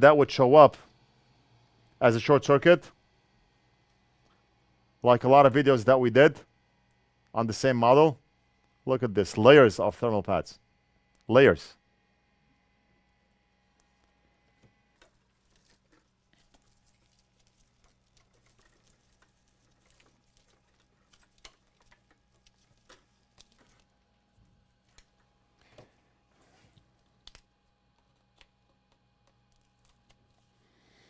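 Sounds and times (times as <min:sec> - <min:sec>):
faint steady hum: 0:00.0 - 0:31.0
small parts clicking and tapping: 0:15.0 - 0:24.0.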